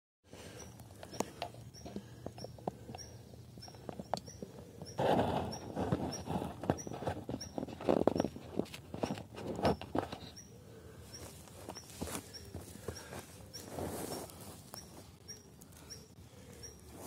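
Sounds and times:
sleeve rustling on microphone: 0:11.2 - 0:15.2.

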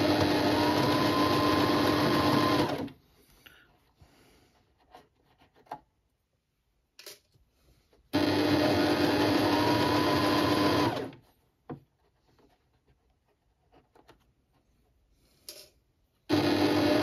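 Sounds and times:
sewing machine stitching: 0:00.0 - 0:03.0, 0:08.1 - 0:11.2, 0:16.3 - 0:17.0.

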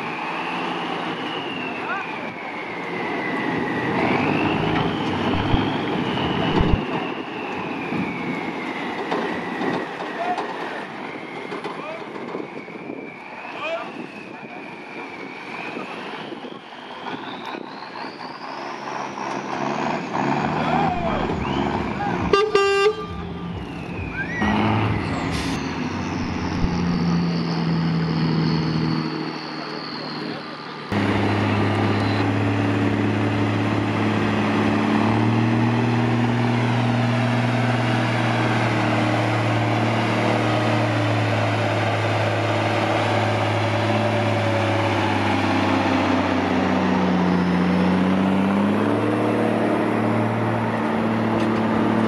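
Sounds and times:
diesel truck engine under load: 0:00.0 - 0:52.0
high whine: 0:03.3 - 0:08.3, 0:20.8 - 0:34.0
low thumps: 0:06.4 - 0:06.8
horn blasts: 0:22.0 - 0:23.6.

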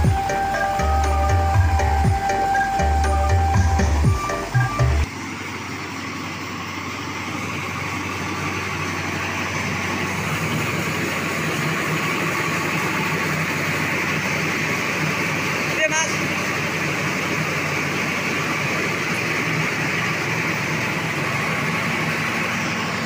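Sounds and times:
background music: 0:00.0 - 0:05.1
rice mill machinery running: 0:00.0 - 0:23.0.

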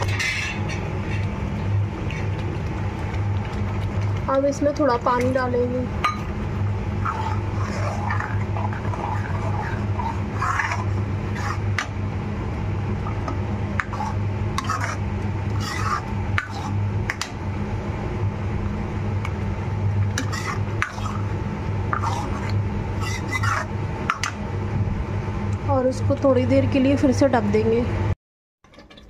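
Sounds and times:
steady low hum: 0:00.0 - 0:29.0
spoon scraping metal pan: 0:07.0 - 0:11.9, 0:13.8 - 0:16.8, 0:20.2 - 0:21.2, 0:21.9 - 0:24.3.

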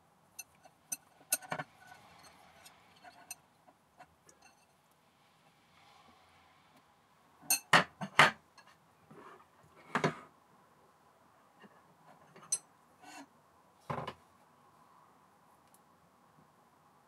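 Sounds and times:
metallic ring: 0:00.4 - 0:03.4, 0:04.4 - 0:04.7, 0:07.5 - 0:07.7.

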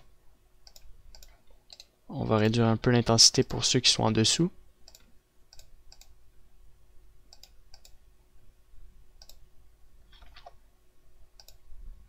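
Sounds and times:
computer mouse clicks: 0:00.6 - 0:02.0, 0:04.8 - 0:06.2, 0:07.3 - 0:08.0, 0:09.2 - 0:09.4, 0:10.1 - 0:10.6, 0:11.4 - 0:11.6.

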